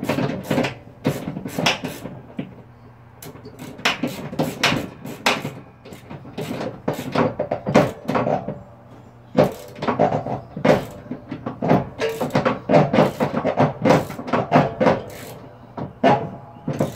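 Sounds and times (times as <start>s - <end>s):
wrench clicking and clanking on nut: 3.2s - 8.6s, 9.4s - 16.9s.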